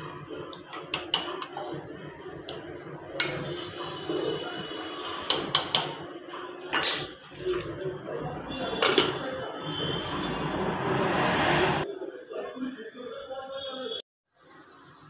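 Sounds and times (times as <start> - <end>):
steel ladle clinking on pot: 3.2 - 3.6.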